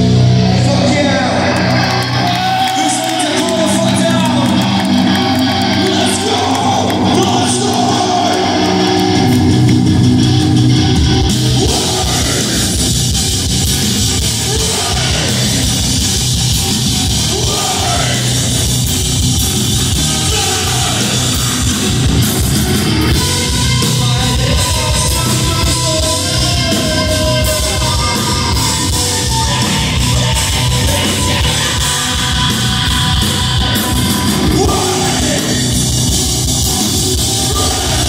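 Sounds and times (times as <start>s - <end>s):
heavy metal band playing live: 0.0s - 38.0s
fast drumming: 2.0s - 38.0s
person singing: 11.4s - 12.8s, 14.2s - 15.8s, 17.2s - 18.5s, 20.0s - 21.7s, 23.5s - 35.8s, 37.2s - 38.0s.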